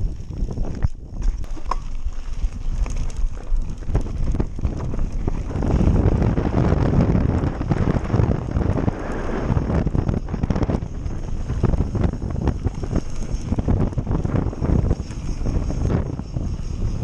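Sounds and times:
tyres crunching over stones: 0.0 - 8.6
wind noise on microphone: 0.0 - 17.0
bike clattering and knocking: 0.2 - 5.9.

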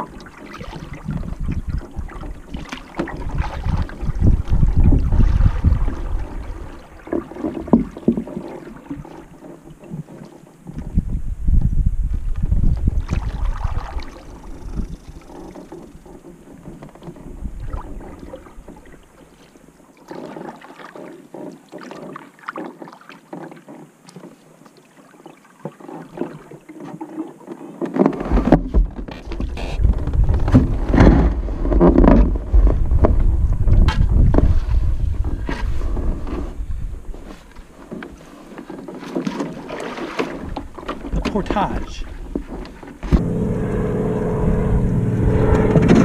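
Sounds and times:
paddle strokes splashing in water: 0.0 - 11.0, 12.4 - 43.5
wind rumbling on microphone: 0.0 - 19.2, 28.2 - 38.2, 40.4 - 46.0.

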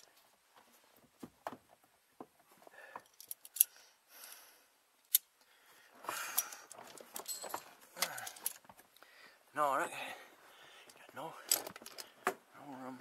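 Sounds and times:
metal tools clinking and rattling: 6.2 - 8.7.

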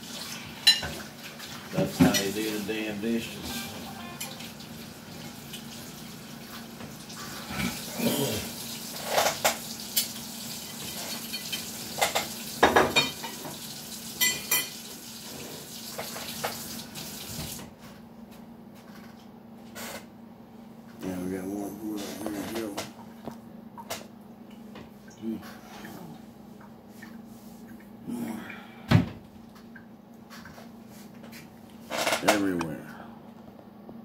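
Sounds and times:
plates clinking: 3.2 - 4.6.

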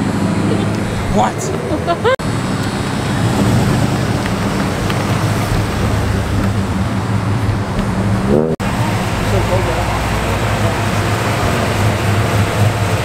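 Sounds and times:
truck engine droning: 0.0 - 13.0
wind noise on microphone: 2.7 - 13.0.

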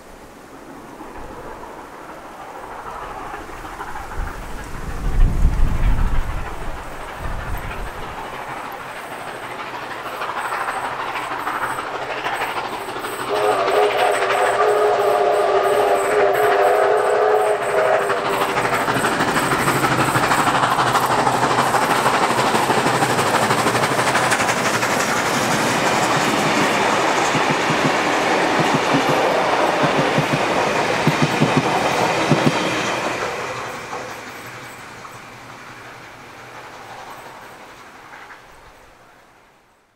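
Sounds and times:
steam locomotive passing: 0.0 - 39.9
wheels clicking over rail joints: 2.1 - 14.4, 17.6 - 35.5.

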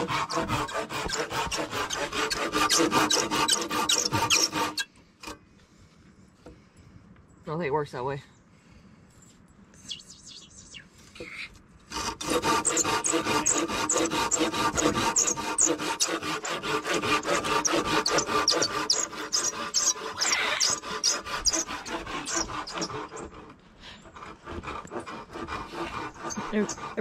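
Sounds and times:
hand saw cutting a log: 0.0 - 5.4, 11.9 - 27.0.

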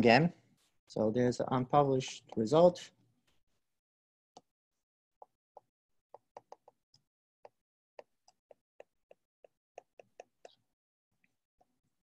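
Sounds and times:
stylus tapping on tablet screen: 5.2 - 6.8, 7.4 - 10.6.

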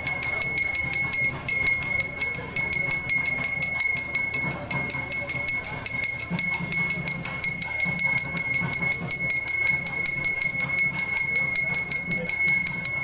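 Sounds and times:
hand bell ringing rapidly: 0.0 - 13.0
low rhythmic pulse: 0.0 - 13.0.

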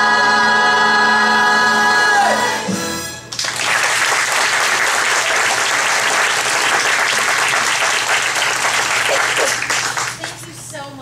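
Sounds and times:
musical accompaniment: 0.0 - 3.6
audience applause: 3.3 - 10.4.

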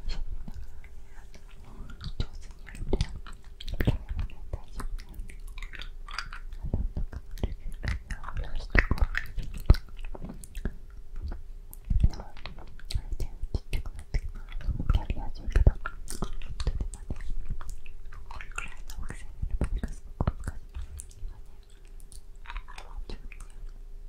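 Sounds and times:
soft breathy whispering: 0.0 - 23.8
wet mouth clicks and smacks: 1.4 - 23.8.

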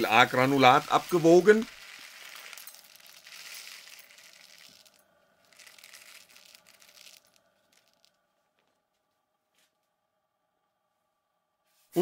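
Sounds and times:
plastic pellets pattering into dish: 0.0 - 8.2
plastic bag crinkling: 0.1 - 8.2.

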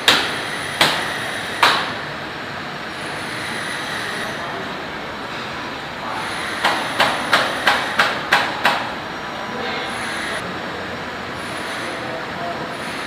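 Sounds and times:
sharp hammer blows: 0.0 - 2.0, 6.2 - 8.9
steady machinery noise: 0.0 - 13.0.

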